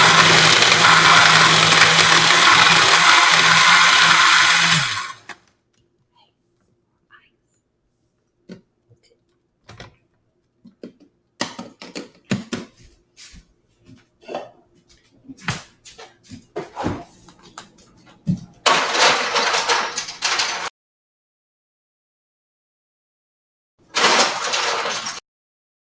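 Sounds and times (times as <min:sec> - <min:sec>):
blender grinding: 0:00.0 - 0:05.4, 0:24.0 - 0:25.2
ice clattering in blender jar: 0:18.7 - 0:20.7, 0:24.0 - 0:25.2.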